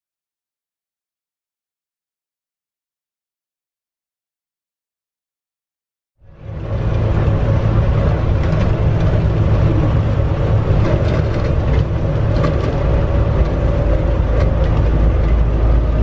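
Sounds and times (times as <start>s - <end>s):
train running rumble: 6.2s - 16.0s.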